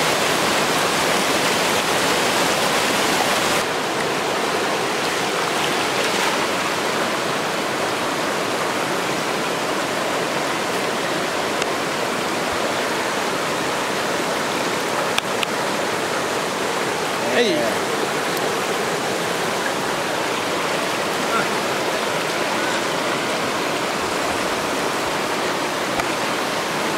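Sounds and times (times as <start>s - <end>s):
stream rushing over rocks: 0.0s - 26.9s.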